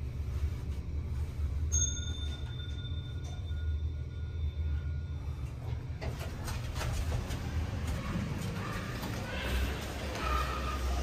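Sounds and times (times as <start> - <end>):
lift car humming: 0.0 - 11.0
lift doors sliding open: 5.8 - 11.0.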